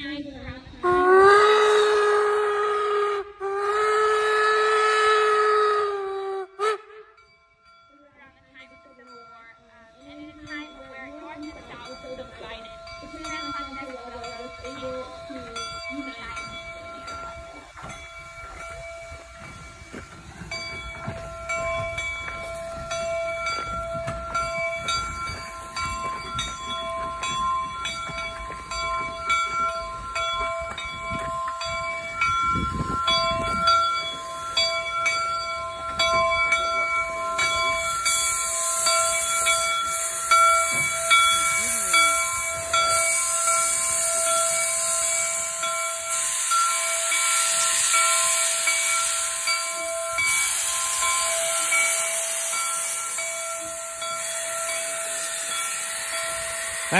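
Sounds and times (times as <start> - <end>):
steam locomotive passing: 0.0 - 56.9
locomotive bell ringing: 6.6 - 56.9
steam hissing: 12.2 - 56.9.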